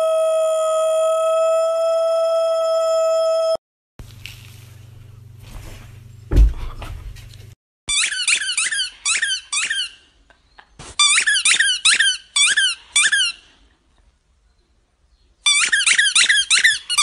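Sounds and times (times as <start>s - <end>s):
squeaky toy squeaking: 7.9s - 10.1s, 11.0s - 13.4s, 15.4s - 17.0s.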